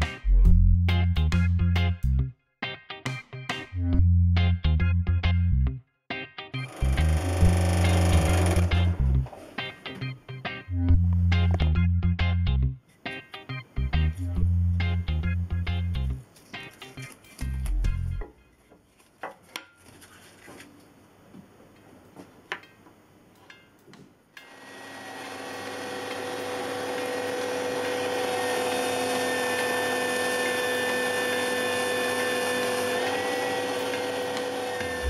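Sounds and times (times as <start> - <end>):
belt sander whining: 6.7 - 9.5, 24.4 - 35.0.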